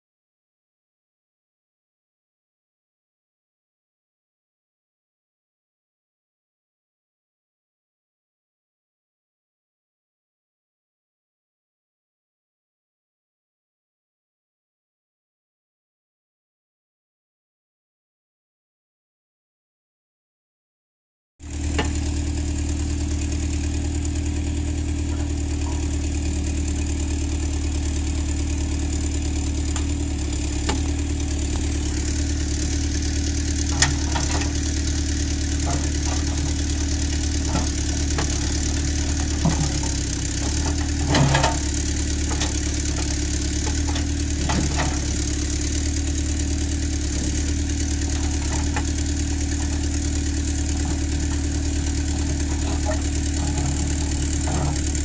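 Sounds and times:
diesel engine running: 21.4s - 55.0s.

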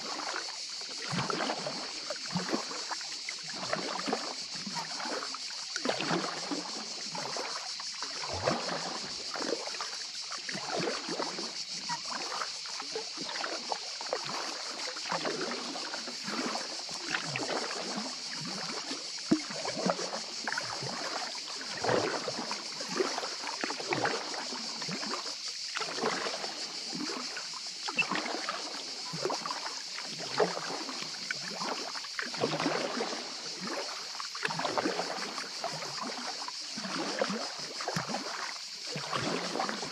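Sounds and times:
paddle splashing in water: 0.0s - 39.9s
water dripping off paddle: 17.1s - 39.9s.

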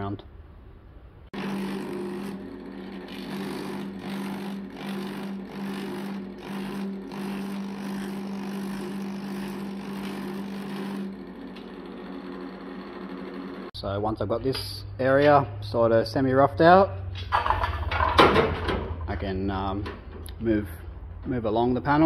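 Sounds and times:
machine hum: 1.3s - 13.8s
power hammer rapid strokes: 1.4s - 11.4s.

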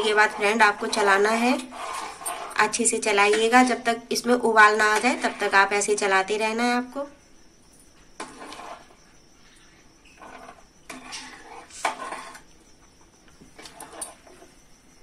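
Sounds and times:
ladle stirring and scraping pan: 0.0s - 3.7s, 4.5s - 6.1s, 8.2s - 9.0s, 10.1s - 12.5s, 13.5s - 14.5s.

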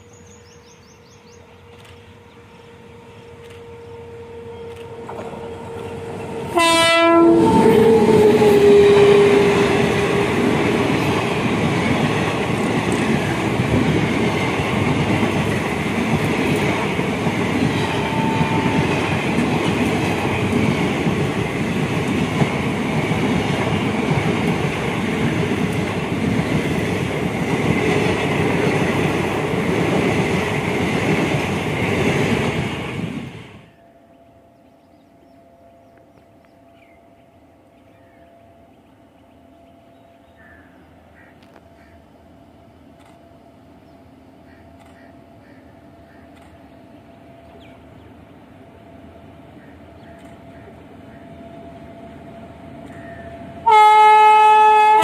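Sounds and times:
train coaches clattering past: 0.0s - 55.0s
locomotive horn blast: 2.1s - 10.8s, 17.7s - 19.4s, 53.6s - 55.0s.

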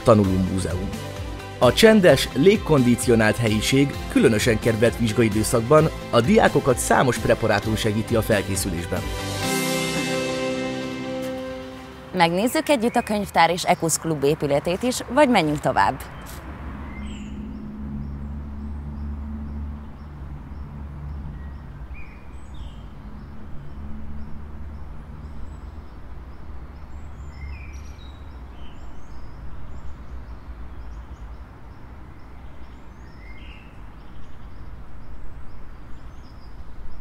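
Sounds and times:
bird chirps: 11.8s - 37.0s
steady low rumble: 16.5s - 25.5s.

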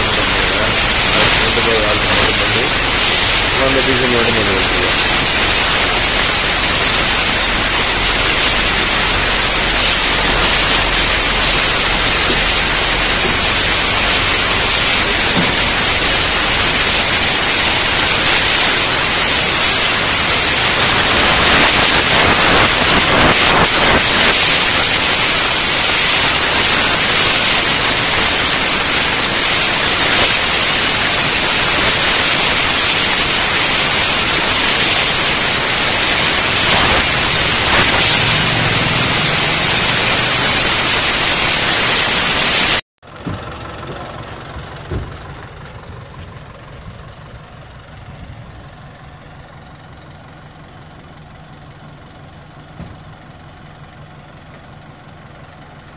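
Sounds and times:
static hiss: 0.0s - 42.8s.

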